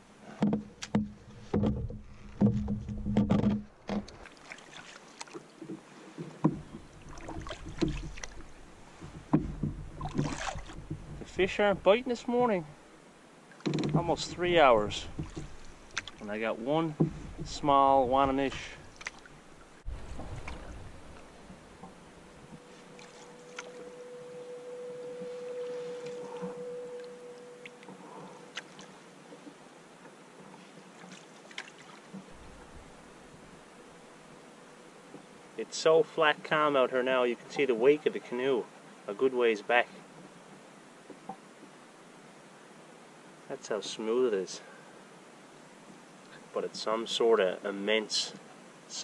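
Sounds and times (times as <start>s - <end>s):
faint water movement: 0.0s - 49.0s
paddle knocking on canoe hull: 0.2s - 4.3s, 5.2s - 12.4s, 13.6s - 23.7s
steady humming tone: 6.5s - 30.3s, 32.1s - 35.6s
light knocks: 15.0s - 16.2s.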